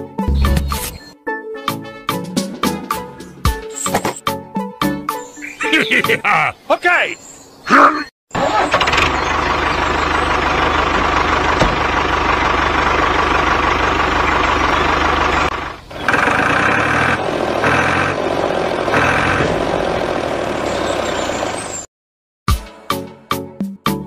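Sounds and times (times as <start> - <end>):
tractor engine running: 8.3 - 21.9
higher-pitched engine tones: 8.4 - 21.9.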